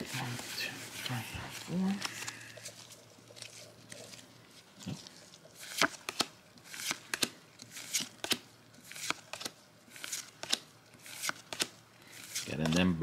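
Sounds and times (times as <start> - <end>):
trading cards snapping and sliding: 5.6 - 13.0.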